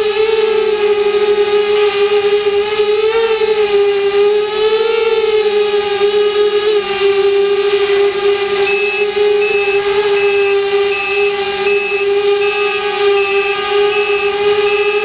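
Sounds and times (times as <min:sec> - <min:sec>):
quadcopter motors whining: 0:00.0 - 0:15.0
high electronic beep: 0:08.7 - 0:15.0.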